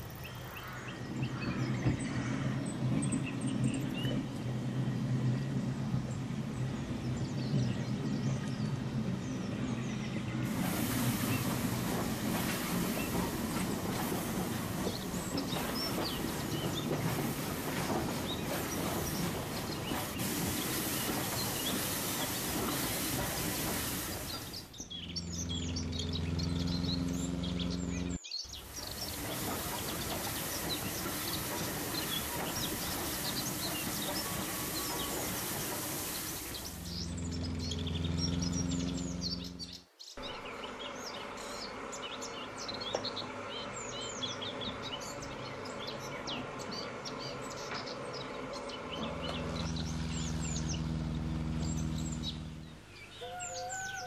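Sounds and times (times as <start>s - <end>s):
small birds chirping: 0.0s - 54.0s
steam hissing: 10.4s - 24.9s, 28.5s - 37.4s
low hum: 36.5s - 40.4s.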